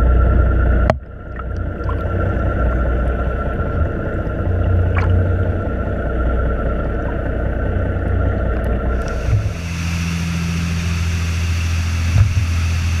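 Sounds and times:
boat engine drone underwater: 0:00.0 - 0:13.0
boat engines running at speed: 0:00.0 - 0:13.0
hiss of wind and spray: 0:09.0 - 0:13.0.

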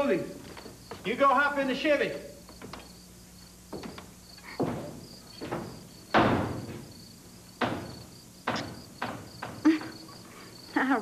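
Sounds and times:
crickets chirping: 0:00.0 - 0:11.0
sharp thuds or knocks: 0:03.7 - 0:10.0.

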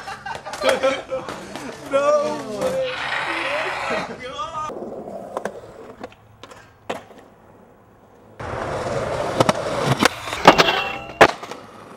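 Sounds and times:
skateboard wheels rolling on pavement: 0:00.0 - 0:11.9
skateboard clacking: 0:04.7 - 0:11.9.

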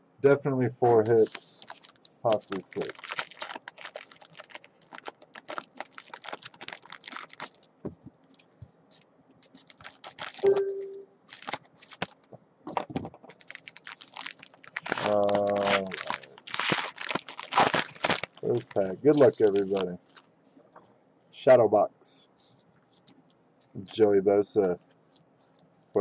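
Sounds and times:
foil wrapper crinkling and tearing: 0:01.0 - 0:07.7, 0:09.4 - 0:10.5, 0:11.3 - 0:20.3.

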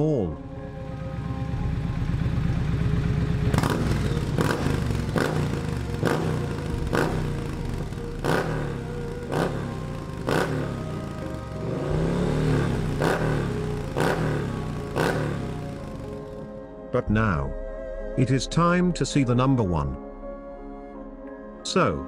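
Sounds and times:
motorcycle engine revving: 0:00.5 - 0:16.6
exhaust cracks: 0:02.1 - 0:16.5.

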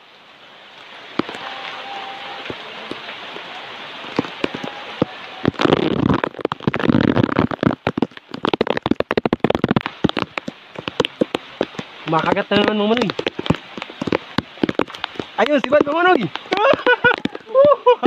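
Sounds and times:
rain drops tapping: 0:00.6 - 0:18.0
rustling noise: 0:04.1 - 0:17.8.

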